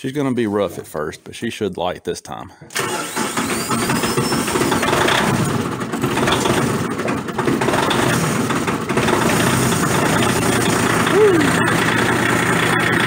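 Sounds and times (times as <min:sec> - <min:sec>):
diesel tractor engine running: 0:02.8 - 0:13.0.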